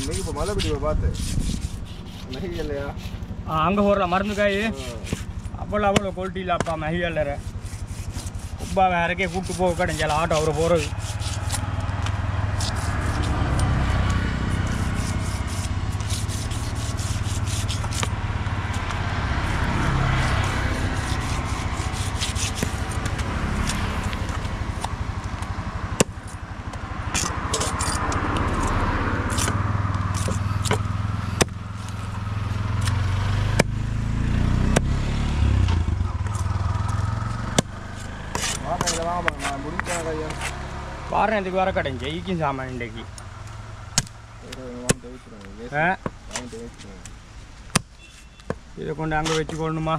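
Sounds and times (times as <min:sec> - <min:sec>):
knife scraping fish scales: 0:00.0 - 0:03.3, 0:07.1 - 0:11.8, 0:12.5 - 0:24.2, 0:27.1 - 0:30.8, 0:37.9 - 0:40.6.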